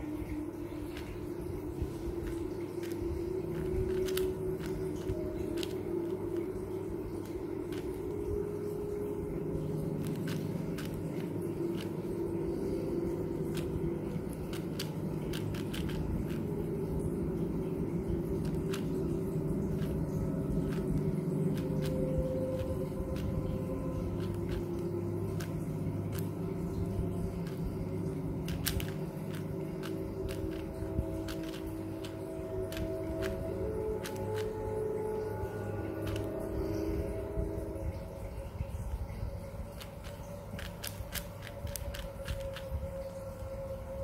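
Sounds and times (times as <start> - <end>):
steady low drone: 0.0 - 44.0
puzzle cube clicking: 2.1 - 6.5, 7.2 - 8.2, 10.0 - 12.1, 13.4 - 16.5, 18.1 - 19.1, 19.7 - 27.7, 28.3 - 34.8, 35.9 - 36.4, 39.7 - 42.7.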